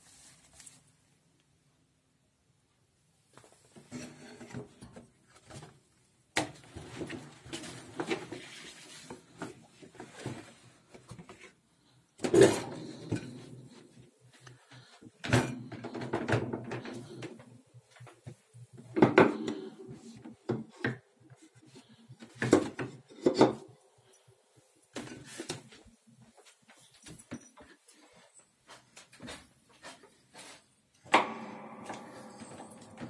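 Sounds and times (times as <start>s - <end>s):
sharp wooden knocks and clunks: 31.1s - 33.0s.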